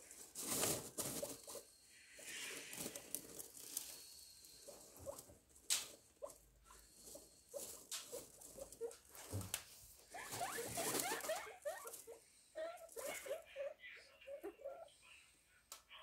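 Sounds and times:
rustling through dry straw: 0.0s - 1.6s
guinea pigs squeaking: 0.3s - 15.0s.

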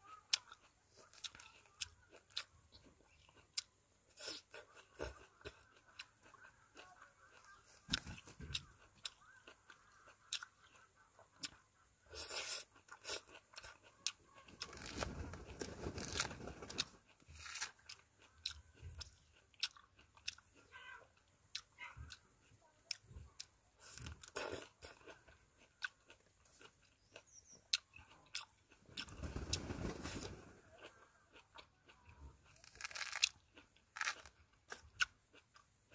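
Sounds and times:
person chewing juicy fruit: 0.0s - 29.5s, 30.2s - 35.9s
fruit rind tearing: 12.3s - 20.4s, 32.4s - 35.6s.

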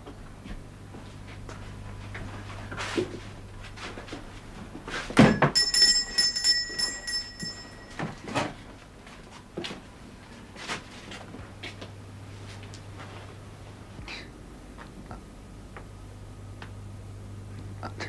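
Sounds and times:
small bell ringing: 5.3s - 8.5s.

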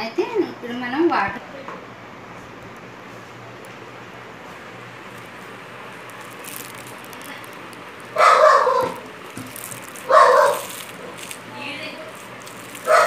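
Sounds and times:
dog barking: 8.2s - 9.0s, 10.0s - 10.8s.

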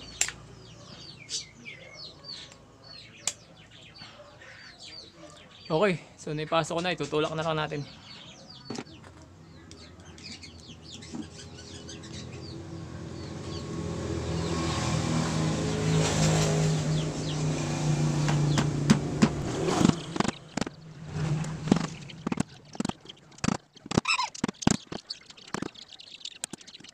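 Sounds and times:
vehicle engine: 8.8s - 25.7s
faint bird chirps: 21.7s - 26.9s.

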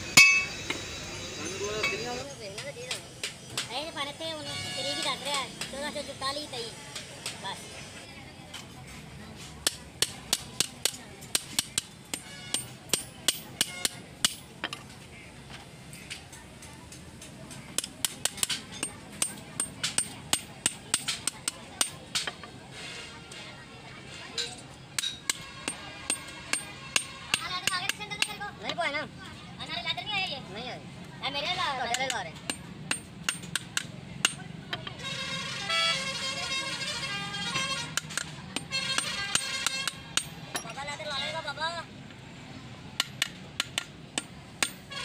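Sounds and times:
hammer tapping on metal: 0.2s - 0.6s, 9.6s - 14.8s, 17.8s - 22.4s, 24.4s - 28.4s, 31.9s - 35.0s, 37.6s - 40.8s, 43.0s - 44.8s
vehicle horn: 4.4s - 5.2s, 35.0s - 38.0s.

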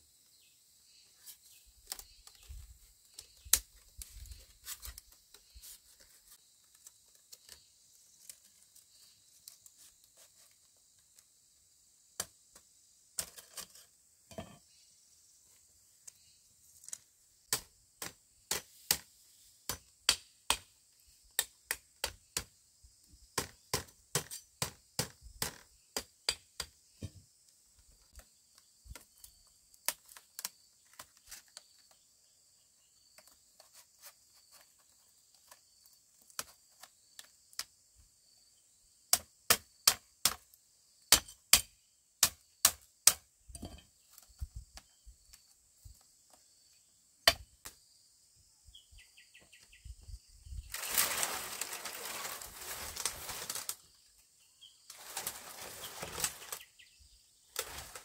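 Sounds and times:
hand tool striking bamboo: 17.5s - 20.7s, 23.4s - 27.2s, 39.1s - 40.4s, 41.1s - 43.9s, 47.3s - 47.5s.

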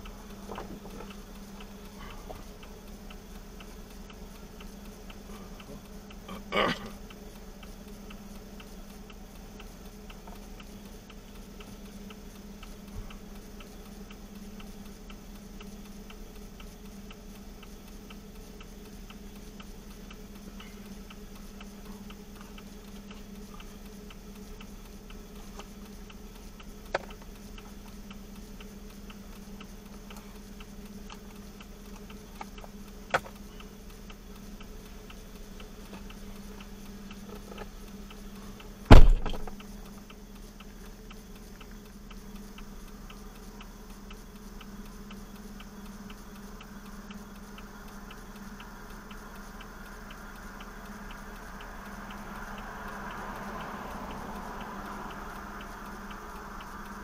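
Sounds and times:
turn signal ticking: 0.0s - 57.0s
low engine hum: 34.4s - 40.1s, 42.2s - 57.0s.

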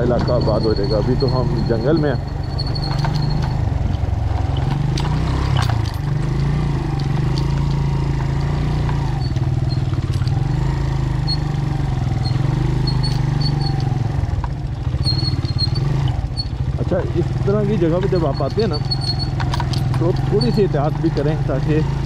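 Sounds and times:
motorcycle engine running: 0.0s - 22.0s
clicks and knocks: 2.2s - 9.4s.

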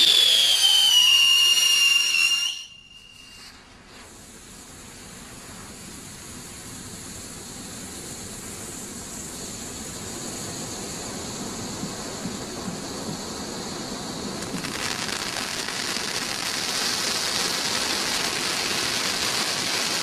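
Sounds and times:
firework falling whistle: 0.0s - 4.8s, 14.4s - 20.0s
firework fountain hissing: 0.0s - 20.0s.

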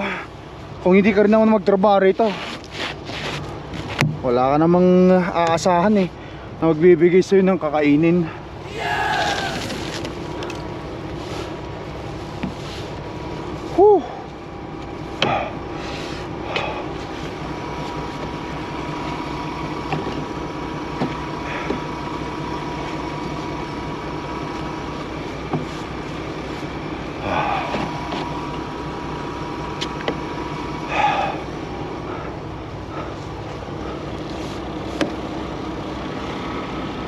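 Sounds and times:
truck engine idling: 8.3s - 37.0s.

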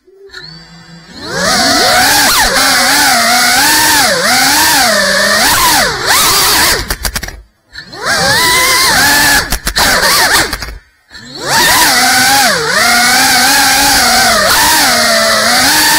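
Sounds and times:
drone propellers whining: 0.0s - 15.9s
quick clicks: 5.6s - 7.5s, 8.1s - 10.9s.

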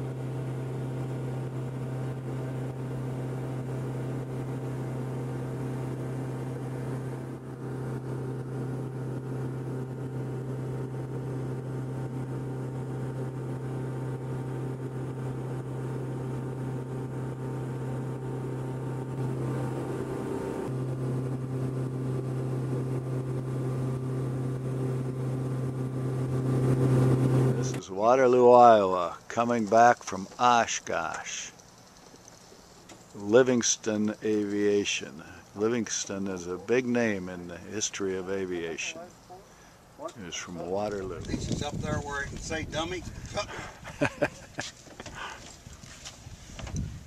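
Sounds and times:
airplane engine droning in cabin: 0.0s - 32.5s.

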